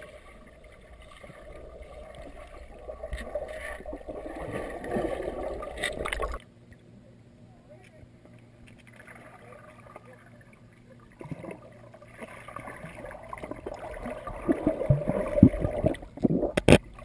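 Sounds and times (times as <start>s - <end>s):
muffled underwater bubbling water: 9.5s - 17.0s.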